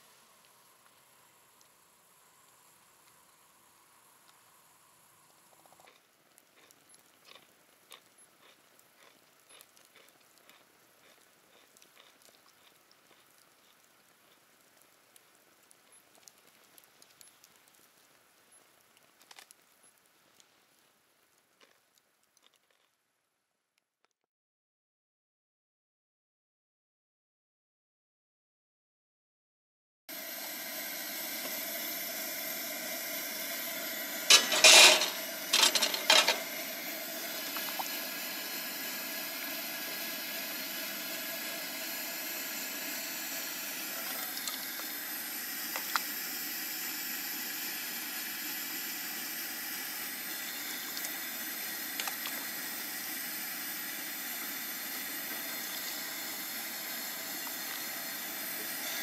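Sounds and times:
camp stove burner hissing: 0:00.0 - 0:21.2, 0:30.1 - 0:59.0
soup splashing and ladle clatter: 0:34.3 - 0:36.5.

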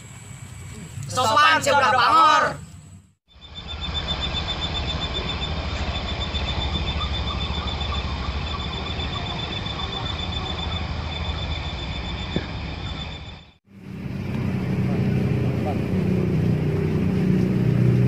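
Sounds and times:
high-pitched pulsing trill: 0:03.3 - 0:14.8.

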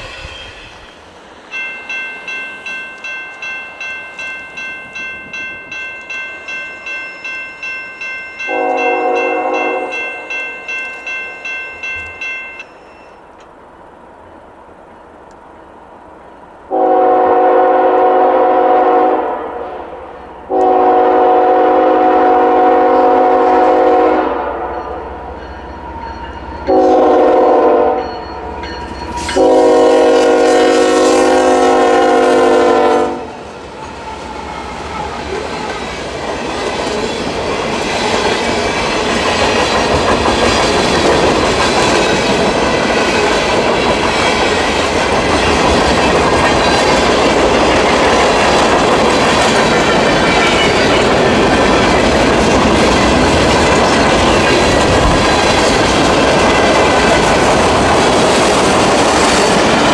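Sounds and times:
railroad crossing bell ringing: 0:01.5 - 0:13.5, 0:23.9 - 0:33.4, 0:34.4 - 0:57.4
locomotive horn: 0:08.5 - 0:10.1, 0:16.7 - 0:19.9, 0:20.5 - 0:25.0, 0:26.7 - 0:28.2, 0:29.3 - 0:33.4
freight cars rumbling and clattering: 0:35.2 - 0:59.9.

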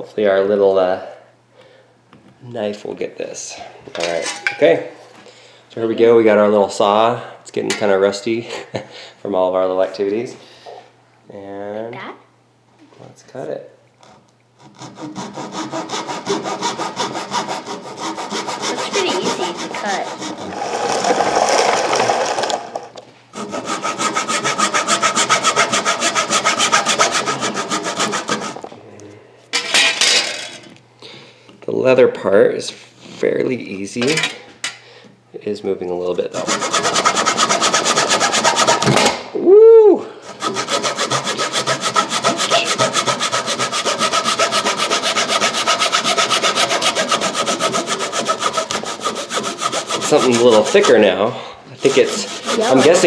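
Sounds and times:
hand saw cutting leather: 0:14.0 - 0:22.6, 0:23.3 - 0:28.7, 0:36.4 - 0:39.0, 0:40.3 - 0:51.2, 0:51.8 - 0:53.0.

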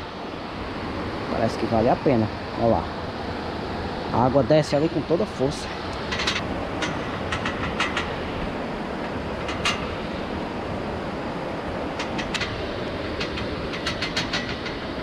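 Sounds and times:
clicks on steel ladder: 0:13.2 - 0:14.8.

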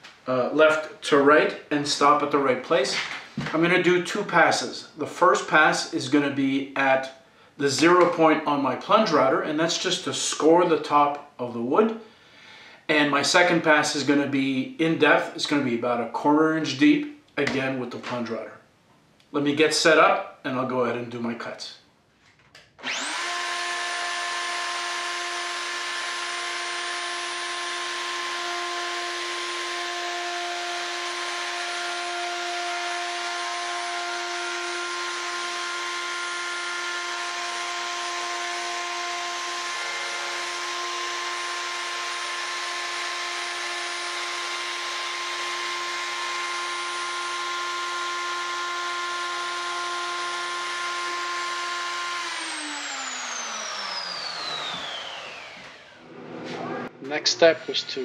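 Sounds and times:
router cutting wood: 0:22.8 - 0:58.0.

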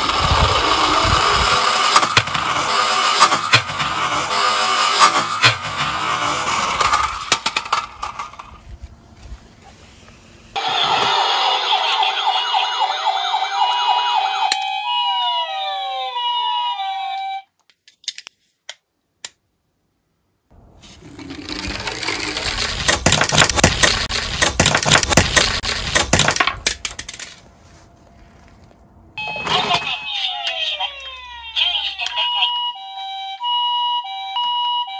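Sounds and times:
noisy rattling and clicking: 0:00.0 - 0:08.6, 0:21.2 - 0:27.4
electronic ambulance siren: 0:10.6 - 0:17.5, 0:29.2 - 0:34.9.

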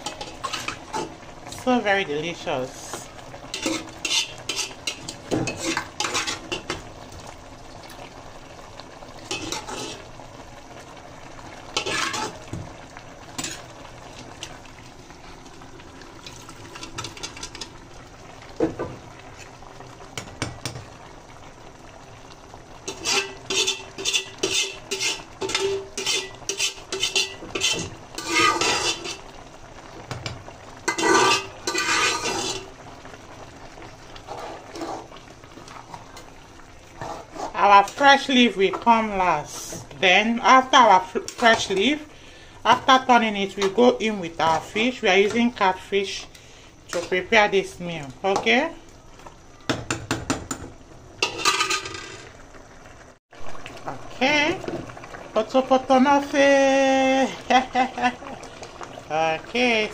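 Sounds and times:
metal spoon scraping a pot: 0:00.0 - 0:01.1, 0:03.5 - 0:06.8, 0:09.3 - 0:10.0, 0:11.8 - 0:12.4, 0:22.9 - 0:29.2, 0:30.9 - 0:32.7, 0:34.3 - 0:35.1, 0:37.0 - 0:38.0, 0:51.2 - 0:52.3.

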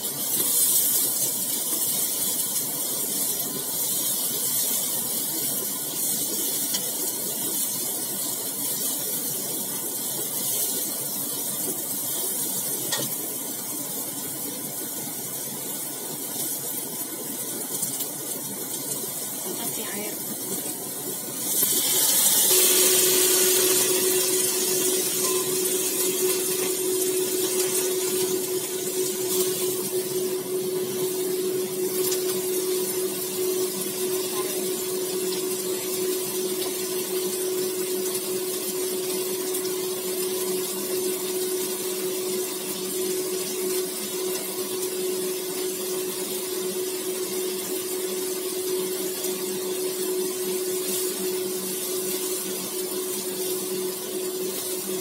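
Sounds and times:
water sizzling in hot wok: 0:00.0 - 0:55.0
steady hum: 0:18.3 - 0:55.0.

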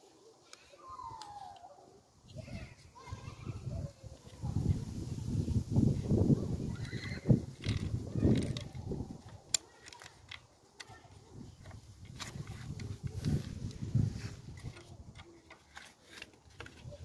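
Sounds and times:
sharp plastic clicks: 0:06.7 - 0:13.8.

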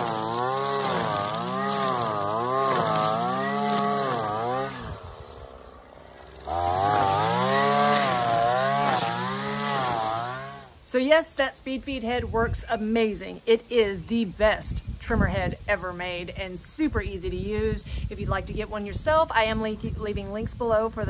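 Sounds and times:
string trimmer cutting grass: 0:00.0 - 0:10.8.

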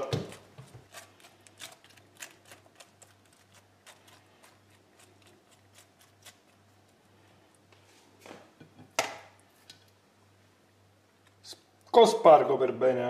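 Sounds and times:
fingers clicking and rustling in a pan: 0:00.0 - 0:07.7.

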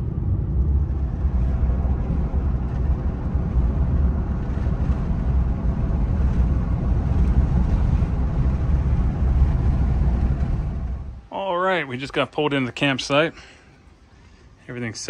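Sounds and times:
engine and road noise in cab: 0:00.0 - 0:11.3.

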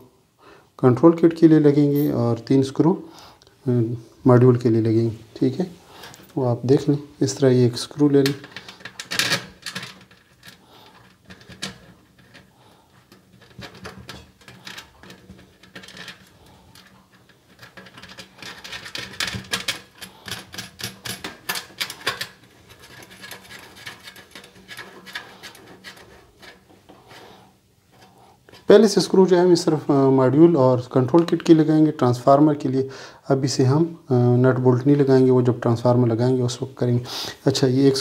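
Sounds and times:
screw clicking and scraping in metal: 0:08.2 - 0:27.0.

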